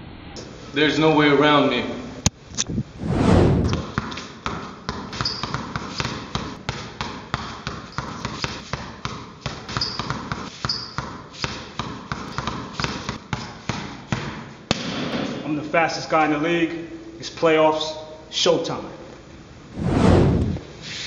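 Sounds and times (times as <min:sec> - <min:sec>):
basketball bouncing on tiled floor: 0:03.8 - 0:15.0.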